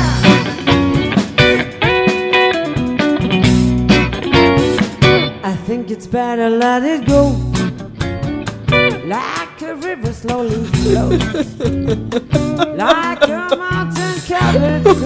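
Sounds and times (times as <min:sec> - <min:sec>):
low bass notes: 0:00.0 - 0:05.4, 0:07.1 - 0:09.1, 0:10.2 - 0:13.0, 0:13.7 - 0:15.0
guitar-backed song: 0:00.0 - 0:15.0.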